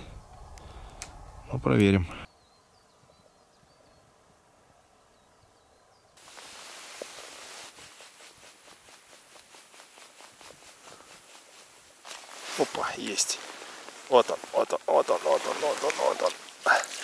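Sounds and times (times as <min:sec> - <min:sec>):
footsteps on snow: 0:06.2 - 0:16.6
steady hiss: 0:06.2 - 0:17.0.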